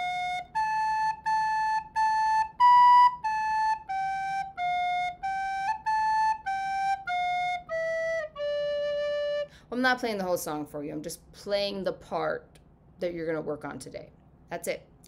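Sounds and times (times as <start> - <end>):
recorder playing slow melody: 0.0 - 9.5.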